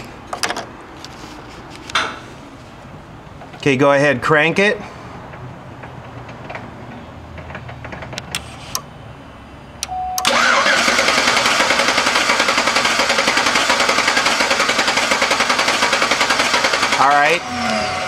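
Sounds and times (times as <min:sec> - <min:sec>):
engine cranking on starter: 0:10.2 - 0:18.0.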